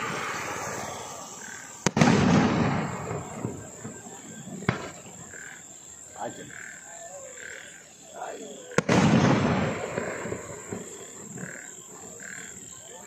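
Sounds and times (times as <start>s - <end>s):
firework shell bang: 1.8s - 4.0s.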